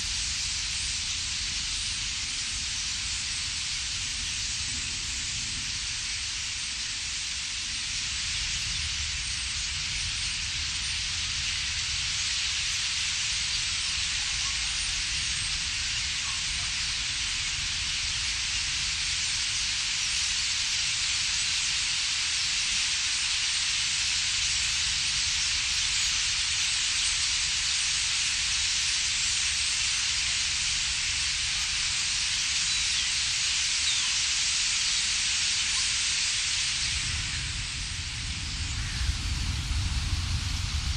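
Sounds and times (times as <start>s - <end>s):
starlings chattering: 11.4s - 22.8s, 25.0s - 39.1s
low rumble: 37.1s - 40.9s.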